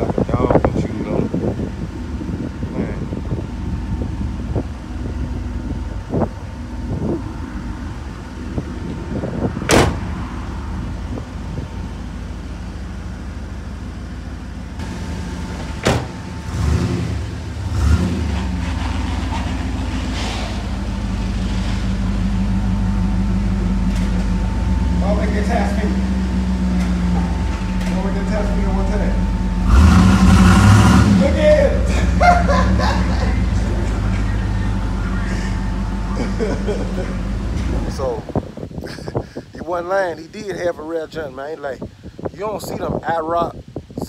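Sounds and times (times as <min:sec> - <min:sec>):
car engine idling: 0:00.0 - 0:42.3.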